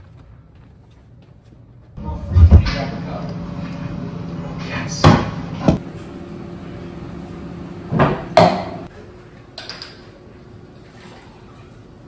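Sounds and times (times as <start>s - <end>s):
low steady hum: 2.0s - 9.4s.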